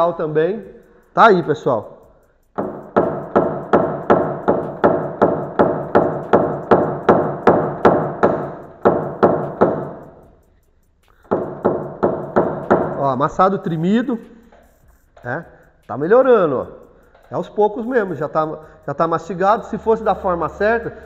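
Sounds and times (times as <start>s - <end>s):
hammer tapping on metal pin: 2.3s - 13.1s.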